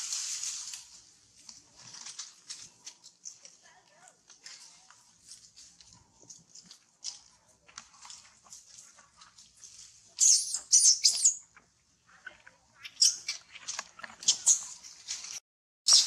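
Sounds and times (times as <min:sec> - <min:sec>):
macaques squealing: 0:10.2 - 0:11.4.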